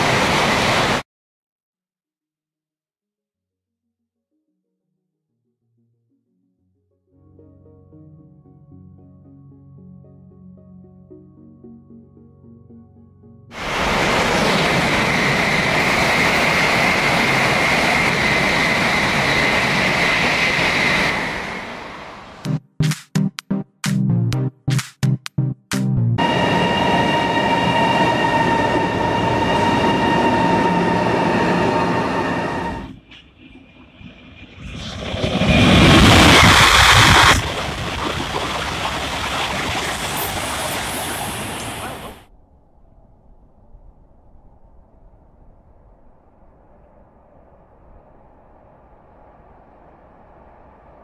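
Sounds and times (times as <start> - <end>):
high-speed train passing: 0.0 - 1.0, 13.6 - 22.5, 26.2 - 42.3
high whine: 26.1 - 37.9.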